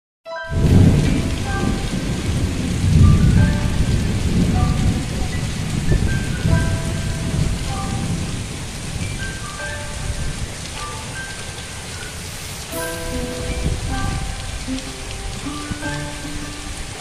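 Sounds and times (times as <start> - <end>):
heavy rain pouring: 0.5 - 17.0
faint short melodic notes: 12.7 - 17.0.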